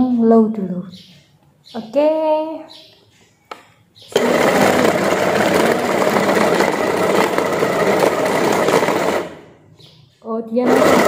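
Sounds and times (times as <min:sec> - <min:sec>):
food chopper motor running: 0:04.1 - 0:09.6, 0:10.6 - 0:11.0.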